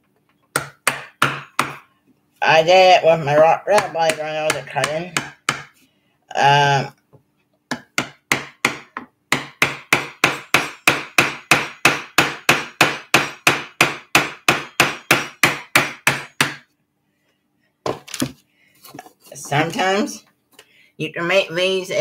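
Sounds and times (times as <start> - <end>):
hammer striking chisel: 0.5 - 1.8, 3.8 - 5.7, 7.7 - 16.6.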